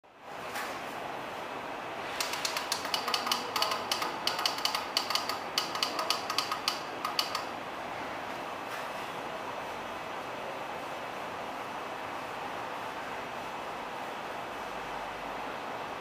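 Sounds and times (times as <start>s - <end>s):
rapid irregular clicking: 2.1s - 7.5s.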